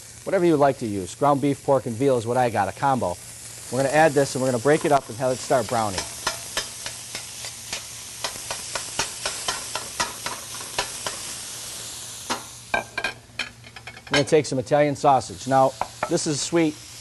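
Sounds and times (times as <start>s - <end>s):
meat sizzling in a pan: 0.0s - 17.0s
metal tongs clicking on pan: 5.7s - 11.3s.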